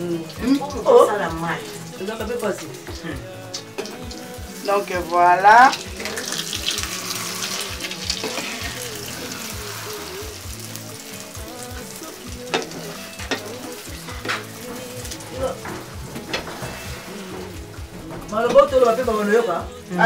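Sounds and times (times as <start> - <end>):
omelette sizzling in a frying pan: 0.0 - 20.0
spatula scraping and tapping pan: 12.5 - 19.2.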